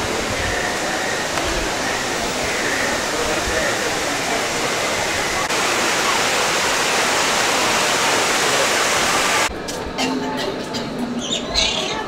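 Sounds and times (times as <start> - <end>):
falling water rushing: 0.0 - 9.5.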